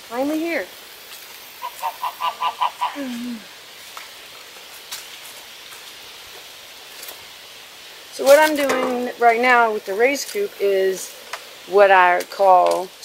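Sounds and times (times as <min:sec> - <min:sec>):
hen clucking: 0:01.6 - 0:03.1.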